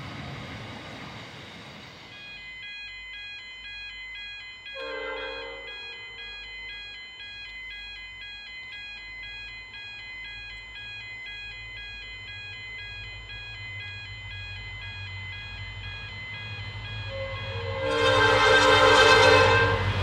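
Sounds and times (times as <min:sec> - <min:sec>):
level crossing warning bells: 0:01.1 - 0:20.0
locomotive horn: 0:04.8 - 0:06.0, 0:17.1 - 0:20.0.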